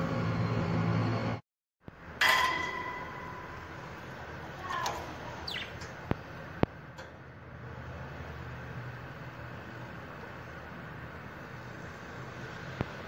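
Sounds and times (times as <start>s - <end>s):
budgie chirps: 5.4s - 6.0s.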